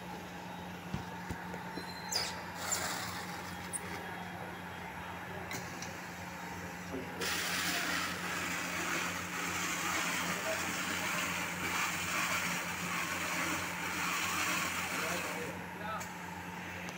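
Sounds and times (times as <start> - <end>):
wrapping machine hiss: 2.1 - 3.7, 7.2 - 15.6.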